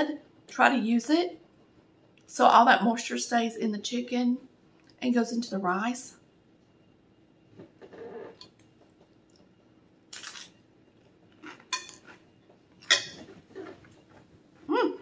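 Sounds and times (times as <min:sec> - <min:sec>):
fork clinking on plate: 0:11.7 - 0:12.1, 0:12.8 - 0:13.3.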